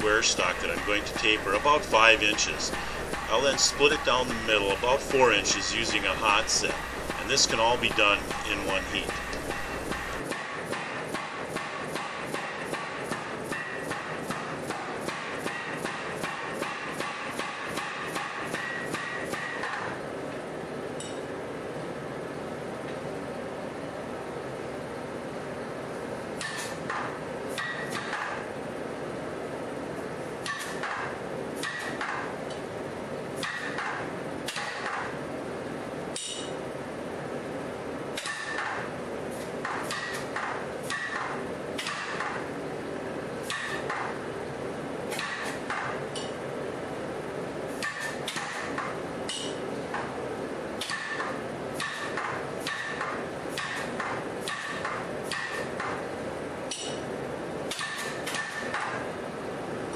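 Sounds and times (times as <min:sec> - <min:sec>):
power hammer metallic blows: 0:00.0 - 0:20.0, 0:33.4 - 0:35.2, 0:38.2 - 0:38.9, 0:39.6 - 0:42.4.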